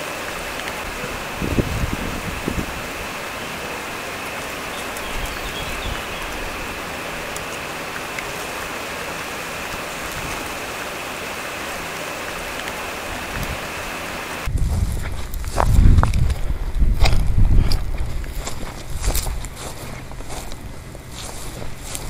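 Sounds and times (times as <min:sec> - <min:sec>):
running water rushing: 0:00.0 - 0:14.5.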